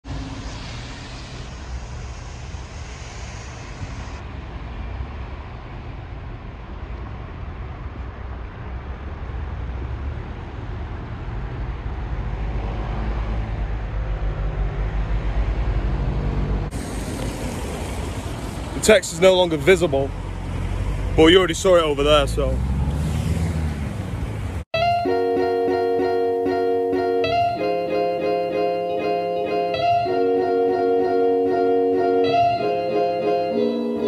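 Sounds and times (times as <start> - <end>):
cars and buses passing on wet road: 0.0 - 24.7.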